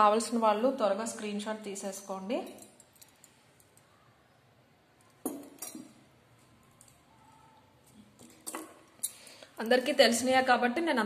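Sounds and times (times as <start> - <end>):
metal pendant balls clinking: 2.2 - 3.8, 5.1 - 7.0, 8.2 - 10.2.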